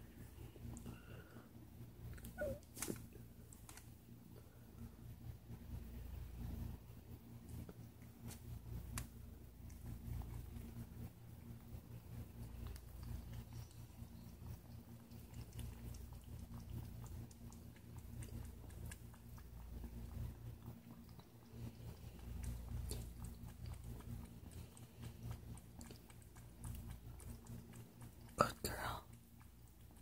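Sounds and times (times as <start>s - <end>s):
steady low hum: 0.0s - 30.0s
kitten chewing clicks: 7.5s - 30.0s.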